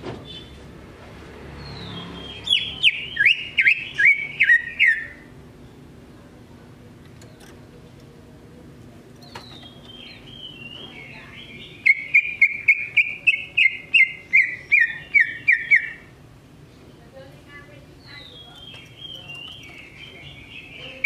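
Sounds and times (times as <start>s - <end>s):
bird singing and chirping: 1.6s - 5.8s, 9.2s - 16.1s, 18.0s - 21.0s.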